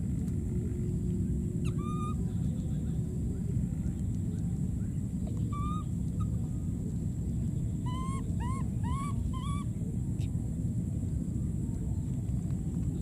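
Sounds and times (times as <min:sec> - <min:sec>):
steady low rumble: 0:00.0 - 0:13.0
baby monkeys squeaking: 0:01.6 - 0:02.2, 0:05.5 - 0:06.3, 0:07.9 - 0:09.7.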